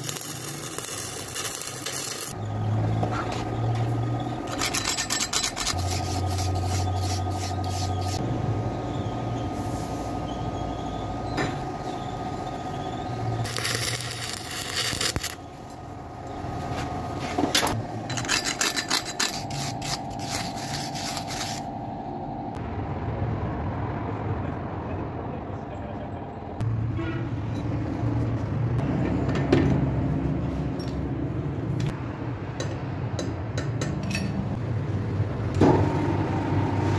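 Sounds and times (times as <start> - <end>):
arc welding crackling hiss: 0.0 - 2.4, 13.4 - 15.4
metal scraping and rasping: 0.0 - 2.4, 4.4 - 8.2, 13.4 - 15.4, 17.6 - 21.8
steady electric hum: 11.8 - 22.6.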